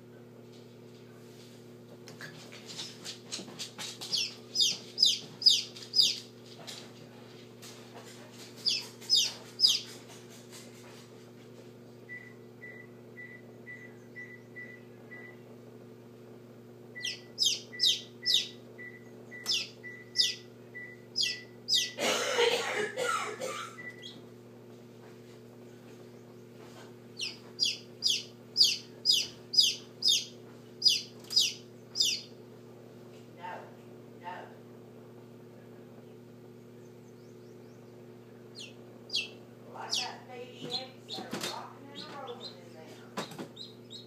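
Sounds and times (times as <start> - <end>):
incubator hum: 0.0 - 44.0
chick peeping: 4.0 - 6.3, 8.6 - 10.0, 17.0 - 22.0, 27.2 - 32.3, 37.2 - 44.0.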